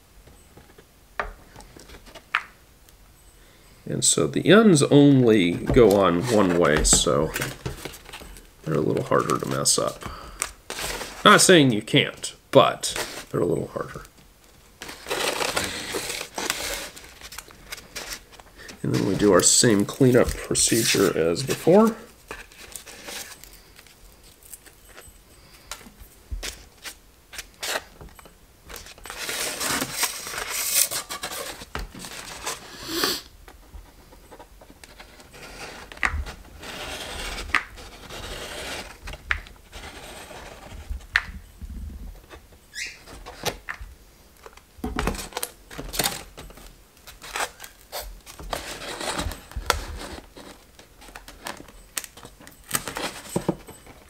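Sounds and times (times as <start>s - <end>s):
scraping and rustling: 28.7s - 43.6s.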